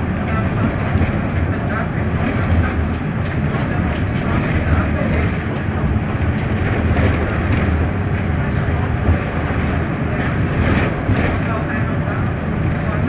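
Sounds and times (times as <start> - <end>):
bus engine and road rumble: 0.0 - 13.0.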